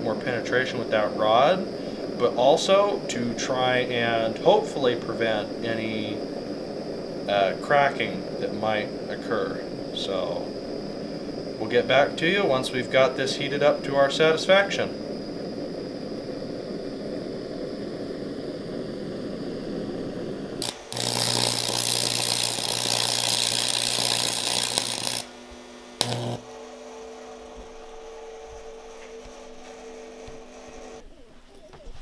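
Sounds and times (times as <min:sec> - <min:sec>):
gas stove burner hissing: 0:00.0 - 0:31.0
steady hum: 0:00.0 - 0:32.0
welding arc crackling: 0:02.3 - 0:31.0.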